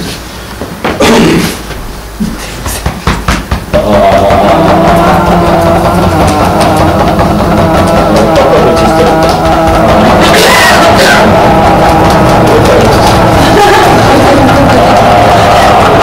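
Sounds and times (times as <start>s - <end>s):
man overtone singing: 3.7s - 13.4s.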